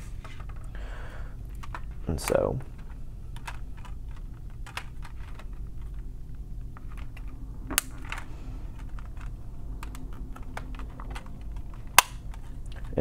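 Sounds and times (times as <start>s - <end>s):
sharp plastic snap: 11.9s - 12.4s.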